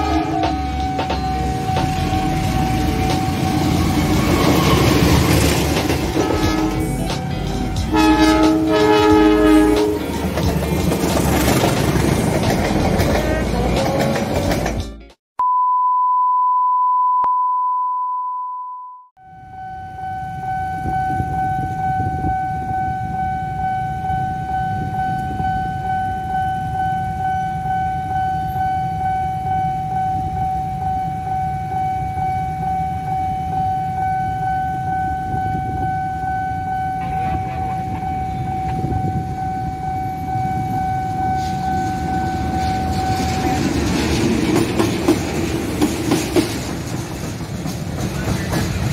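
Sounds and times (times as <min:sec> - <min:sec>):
level crossing alarm: 0:00.0 - 0:10.0, 0:18.8 - 0:43.7
diesel locomotive: 0:00.0 - 0:15.2, 0:19.2 - 0:48.9.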